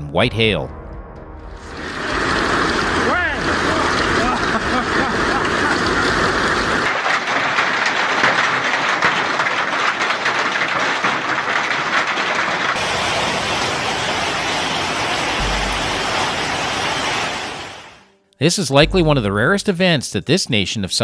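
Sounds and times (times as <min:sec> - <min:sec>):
rain hissing: 0:01.6 - 0:08.7, 0:11.9 - 0:18.1
hail striking the ground: 0:01.7 - 0:17.9.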